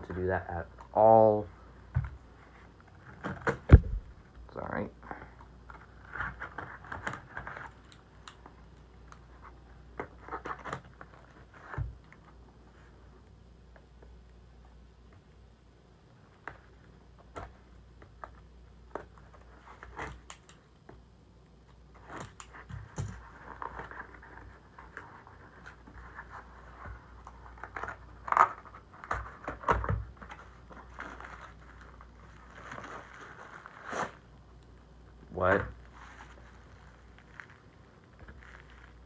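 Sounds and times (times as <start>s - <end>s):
cardboard scraping and crinkling: 22.0s - 34.2s, 35.5s - 39.0s.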